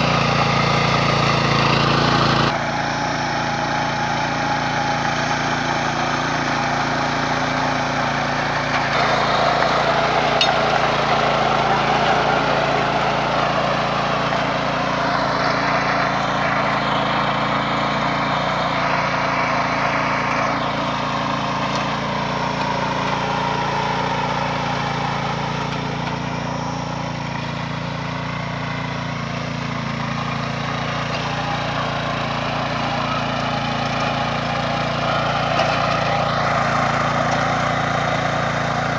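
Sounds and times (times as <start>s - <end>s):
tiller engine running: 0.0s - 38.9s
tines churning soil: 0.0s - 38.9s.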